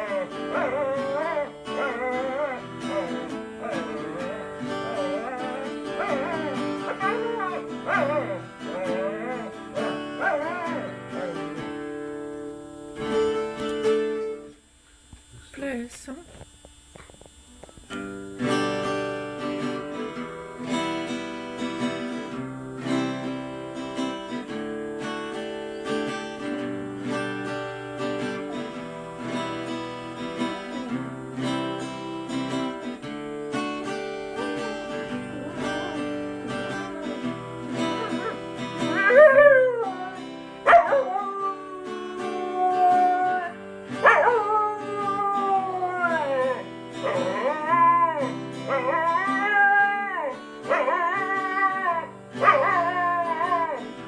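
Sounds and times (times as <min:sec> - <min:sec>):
dog howling: 0:00.0 - 0:11.8, 0:34.2 - 0:54.0
guitar strumming: 0:00.0 - 0:54.0.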